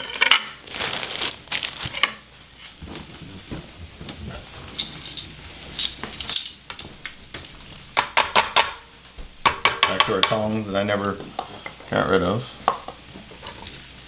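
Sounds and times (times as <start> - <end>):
metal utensils clinking on pan: 4.8 - 6.6.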